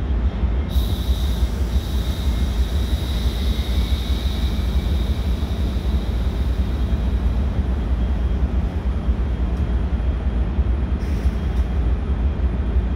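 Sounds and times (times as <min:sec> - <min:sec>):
train low rumble: 0:00.0 - 0:12.9
faint high whine: 0:00.6 - 0:08.7.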